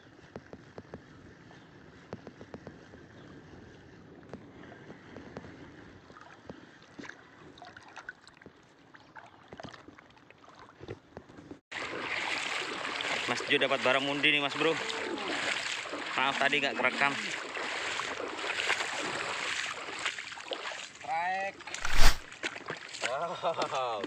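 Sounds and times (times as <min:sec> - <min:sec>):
small clicks and splashes: 0:05.2 - 0:11.2, 0:14.6 - 0:21.0, 0:21.6 - 0:24.0
sea water lapping: 0:11.7 - 0:23.2.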